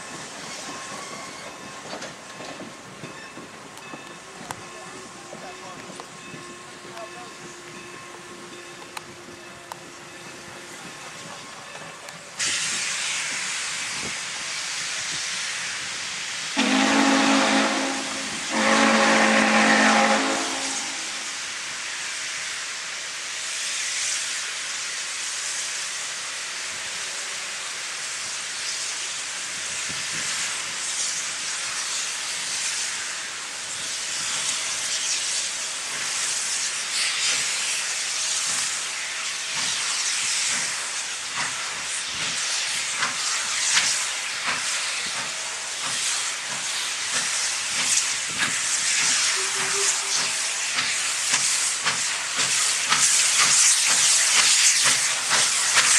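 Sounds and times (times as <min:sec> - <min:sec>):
steam hiss: 0:00.0 - 0:55.9
steam locomotive exhaust beats: 0:00.0 - 0:55.9.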